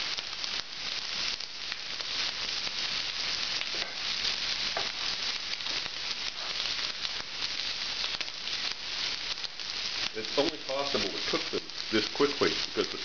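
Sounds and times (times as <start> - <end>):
shrimp sizzling in a pan: 0.0 - 13.0.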